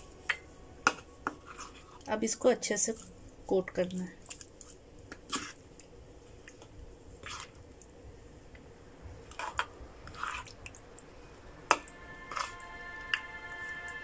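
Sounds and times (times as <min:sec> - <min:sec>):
spoon squelching in marinade: 0:00.4 - 0:02.1, 0:04.2 - 0:07.6, 0:11.8 - 0:13.7.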